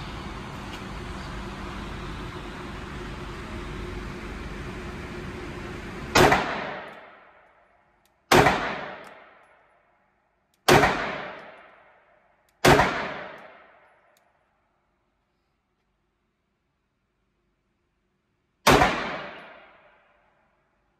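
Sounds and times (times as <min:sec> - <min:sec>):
pistol shots with echo: 0:06.2 - 0:07.2, 0:08.3 - 0:09.4, 0:10.6 - 0:11.7, 0:12.6 - 0:13.8, 0:18.6 - 0:19.9.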